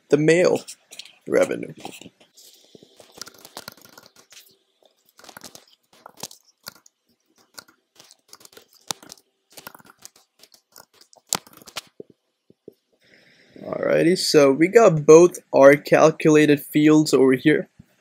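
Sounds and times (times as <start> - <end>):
typing on computer keyboard: 3.0 - 4.3.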